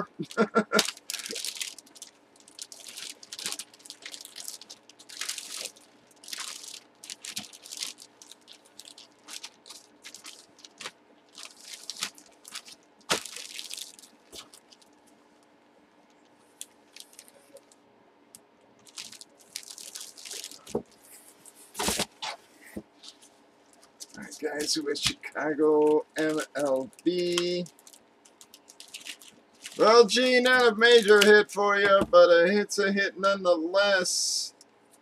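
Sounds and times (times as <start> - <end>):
plastic packaging crinkling: 0.2 - 15.4, 16.0 - 22.2, 23.0 - 31.4.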